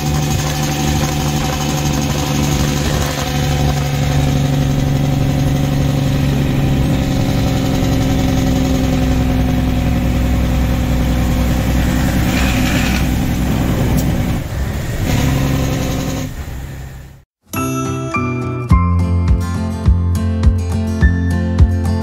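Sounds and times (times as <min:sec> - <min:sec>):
truck diesel engine running: 0:00.0 - 0:17.2
music: 0:17.5 - 0:22.0.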